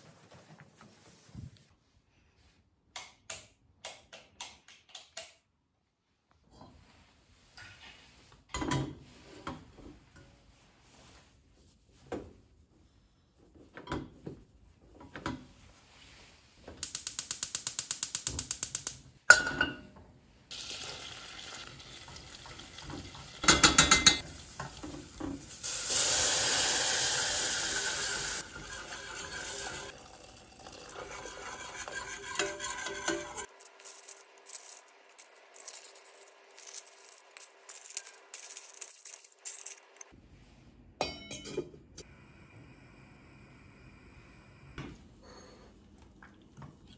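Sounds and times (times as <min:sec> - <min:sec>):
water pouring into pot: 0:20.5 - 0:39.2
whisk clinking against pot: 0:23.4 - 0:24.2, 0:30.9 - 0:36.3.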